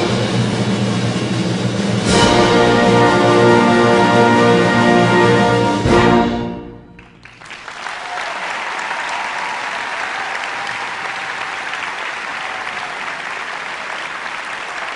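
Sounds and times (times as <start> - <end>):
audience applause: 7.0 - 14.9.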